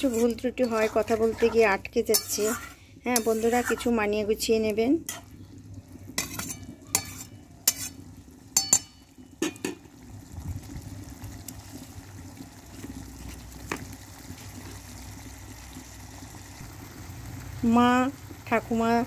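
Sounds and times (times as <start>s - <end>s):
sauce simmering in pan: 0.0s - 19.0s
utensil clinking on metal pan: 2.1s - 3.8s, 6.2s - 8.0s, 8.6s - 9.8s.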